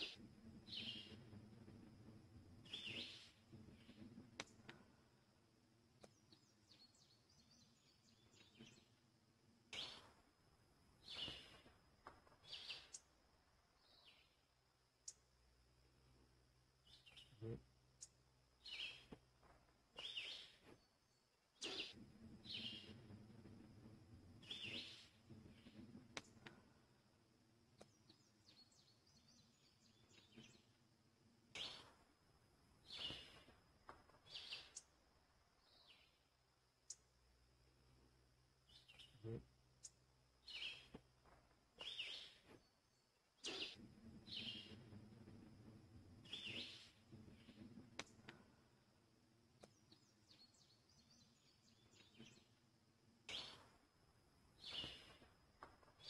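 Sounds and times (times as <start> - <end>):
small songbird calls: 0.0 - 4.9, 6.0 - 9.0, 9.7 - 10.2, 11.0 - 11.8, 12.4 - 13.1, 13.8 - 14.4, 16.8 - 19.2, 19.9 - 26.6, 27.8 - 30.8, 31.5 - 32.0, 32.8 - 33.5, 34.2 - 35.0, 35.6 - 36.3, 38.6 - 41.0, 41.8 - 48.5, 49.6 - 52.6, 53.3 - 53.8, 54.5 - 55.3
faint bird chirps: 0.0 - 5.2, 6.0 - 9.0, 9.7 - 10.3, 10.9 - 27.0, 27.7 - 30.8, 31.5 - 32.1, 32.8 - 41.0, 41.8 - 48.8, 49.6 - 56.0
low steady rumble: 0.0 - 11.1, 22.0 - 32.9, 43.8 - 50.2
click: 48.0 - 48.4, 49.6 - 50.0.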